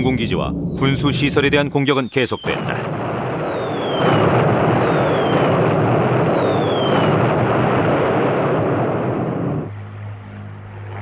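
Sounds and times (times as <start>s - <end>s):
aircraft engine drone: 0.0s - 11.0s
rumbling blasts: 0.0s - 11.0s
short falling whistles: 3.4s - 4.2s, 4.8s - 5.4s, 6.3s - 7.0s.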